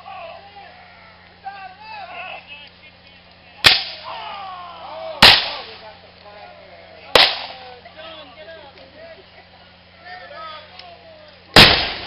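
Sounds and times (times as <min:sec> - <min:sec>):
musket shots: 0:03.6 - 0:04.1, 0:05.2 - 0:05.7, 0:07.2 - 0:07.6, 0:11.6 - 0:12.0.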